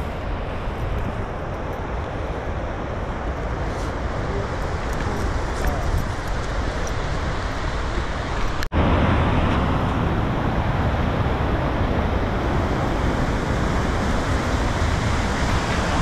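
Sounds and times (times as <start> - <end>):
stream rushing over rocks: 0.0 - 16.0.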